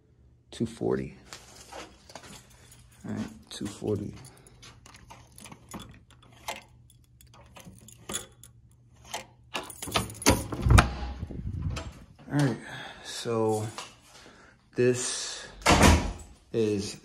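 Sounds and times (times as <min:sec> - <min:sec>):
keys jangling: 0:02.1 - 0:10.8.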